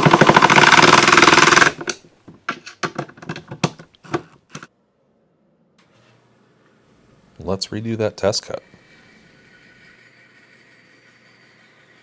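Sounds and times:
impact driver rattling: 0.0s - 2.0s
sharp clicks and knocks: 1.6s - 4.7s.

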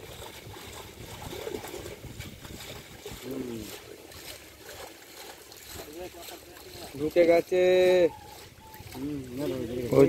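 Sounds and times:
wind rumble on microphone: 0.0s - 3.8s
water trickling: 0.0s - 10.0s.

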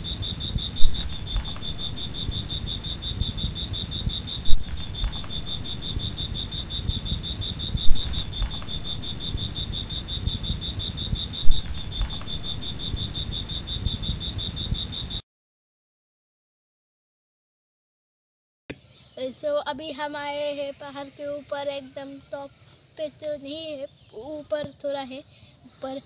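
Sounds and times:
sudden loud thumps: 0.0s - 14.9s
low rumble: 0.0s - 15.1s
insect pulsing trill: 0.0s - 15.2s.

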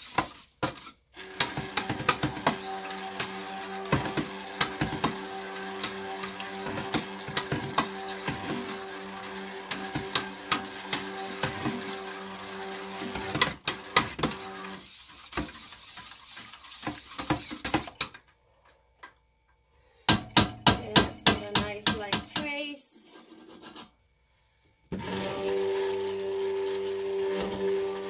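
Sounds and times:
stick blender running: 1.2s - 15.0s, 24.9s - 28.0s.

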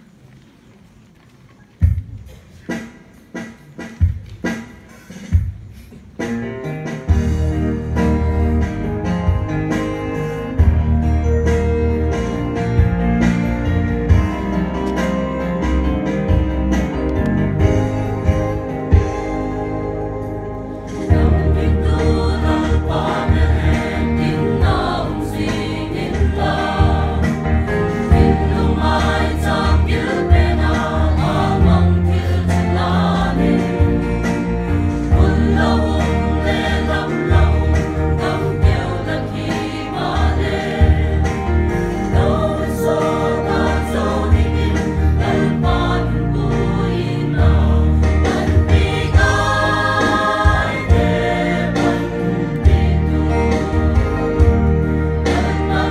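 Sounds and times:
bass accompaniment: 6.2s - 55.9s
choir singing a hymn: 17.6s - 55.9s.

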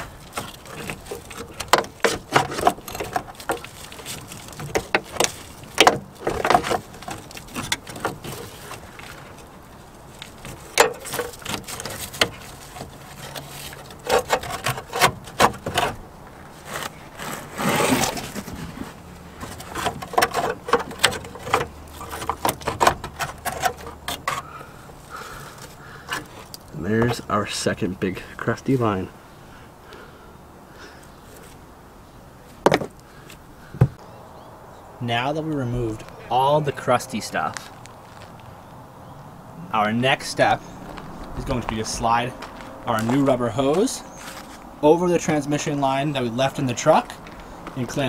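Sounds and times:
metal line scraping against frame: 10.2s - 27.4s.

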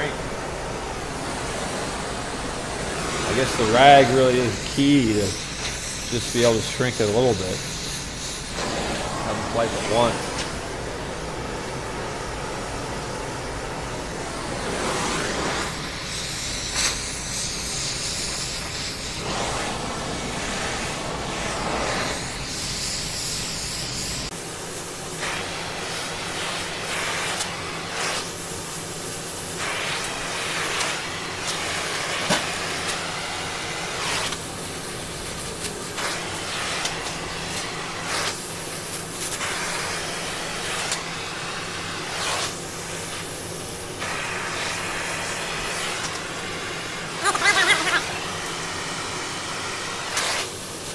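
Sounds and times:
torch flame hissing: 0.0s - 50.9s
sizzling of damp rag on hot steel: 1.4s - 10.6s, 14.8s - 50.9s.

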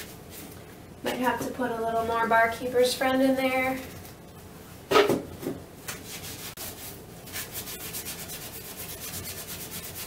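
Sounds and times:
sponge scrubbing toilet bowl: 6.1s - 10.0s.

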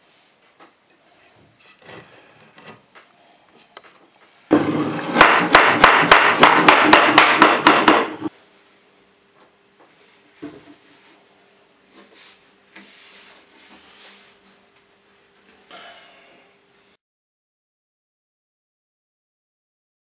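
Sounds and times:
small hammer striking wood: 5.1s - 8.3s.

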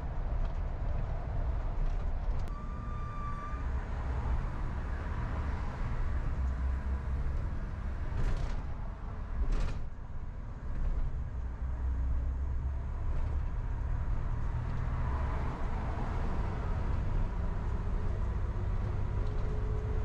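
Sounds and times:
car road and engine rumble: 0.0s - 20.0s
brief high tone: 2.5s - 3.8s.

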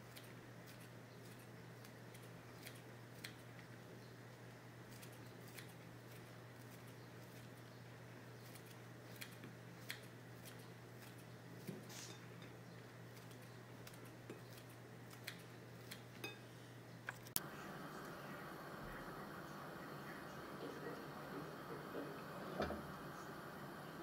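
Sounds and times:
scissors snipping fritters: 0.0s - 3.8s, 4.8s - 7.6s, 8.4s - 12.2s, 13.1s - 16.4s
steady low hum: 0.0s - 24.0s.

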